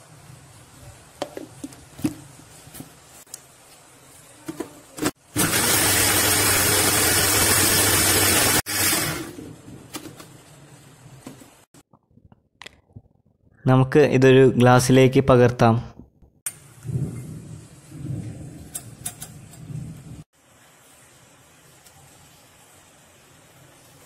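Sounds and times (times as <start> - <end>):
mixer grinder running: 5.3 - 9.4.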